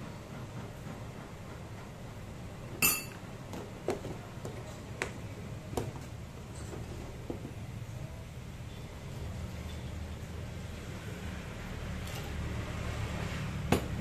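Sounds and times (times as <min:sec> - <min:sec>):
ringing clink of kitchenware: 0:02.8 - 0:03.2.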